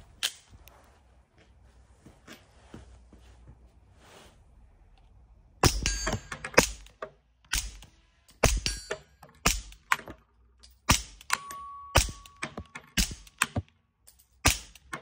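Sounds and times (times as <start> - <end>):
high metallic pings: 11.3 - 12.4.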